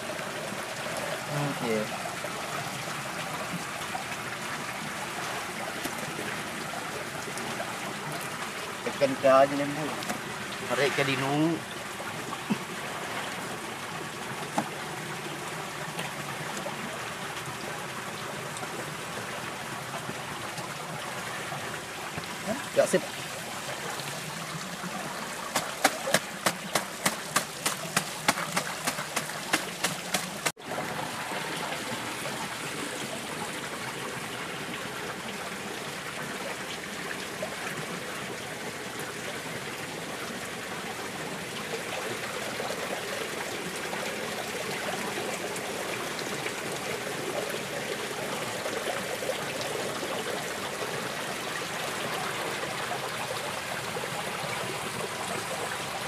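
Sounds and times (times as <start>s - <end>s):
water running from a hose: 0.0s - 18.6s, 19.3s - 35.9s.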